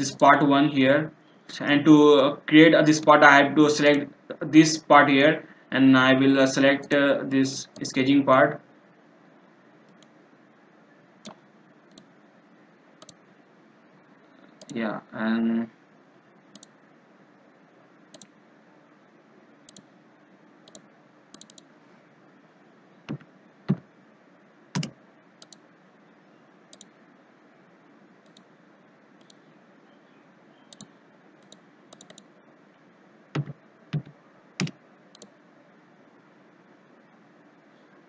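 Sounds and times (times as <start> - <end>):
faint steady hiss: 0.0 - 38.0
mouse clicks: 18.1 - 18.4, 20.7 - 21.7, 24.8 - 25.6, 26.7 - 27.0, 29.2 - 29.5, 30.7 - 32.3, 33.4 - 35.4.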